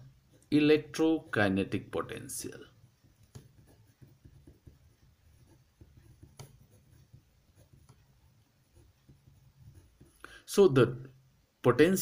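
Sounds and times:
pen scratching on paper: 0:00.0 - 0:10.2
pen tap: 0:03.0 - 0:08.0.

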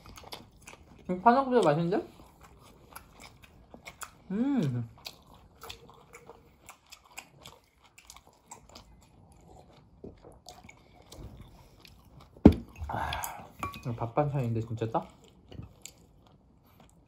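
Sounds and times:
crunchy bites and chewing: 0:02.1 - 0:13.6
loud thump: 0:12.4 - 0:12.7.

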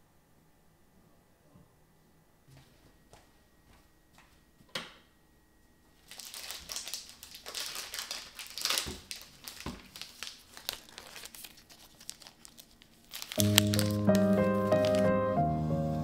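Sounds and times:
paper wrapper tearing and crinkling: 0:06.0 - 0:15.2.

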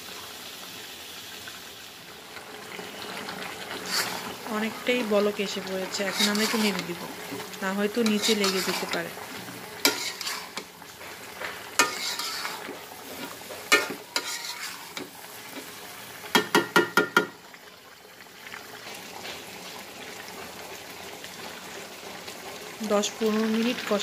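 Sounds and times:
curry sizzling in a pan: 0:00.0 - 0:24.0
spatula scraping a pan: 0:03.0 - 0:16.5.

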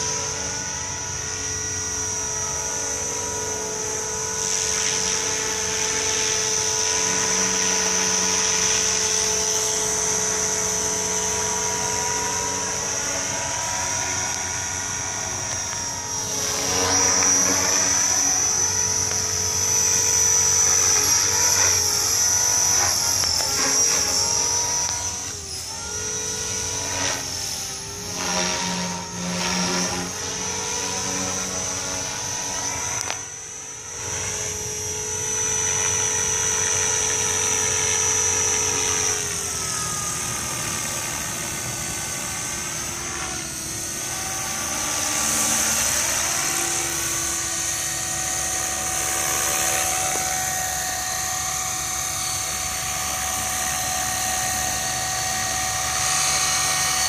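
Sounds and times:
rc helicopter motor whine: 0:00.0 - 0:57.0.

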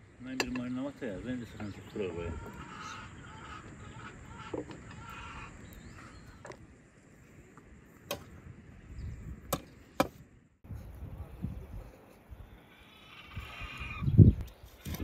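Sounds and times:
chickens clucking: 0:01.6 - 0:06.4.

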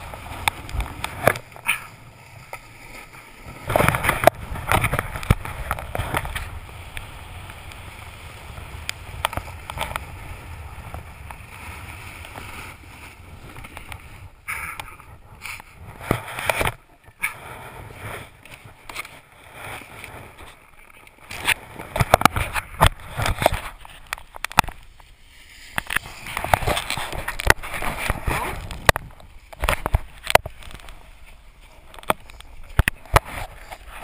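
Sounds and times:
snow crunching and scraping: 0:00.0 - 0:34.0
camera handling rustling: 0:19.8 - 0:24.9, 0:25.7 - 0:31.0.

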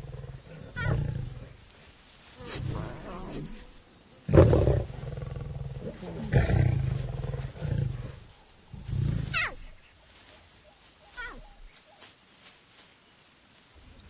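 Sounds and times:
lions snarling and growling: 0:00.0 - 0:01.6, 0:02.4 - 0:09.6.

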